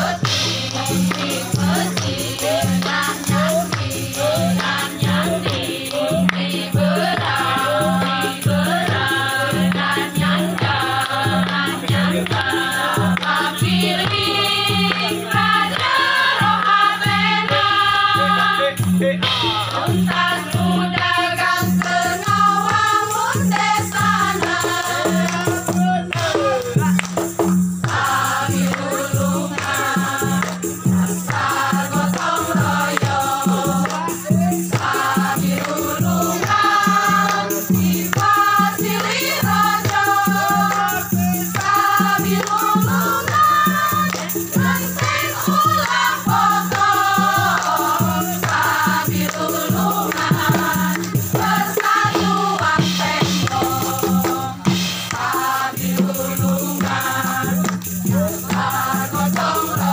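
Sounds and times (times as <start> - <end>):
group of voices singing: 0.0 - 59.9.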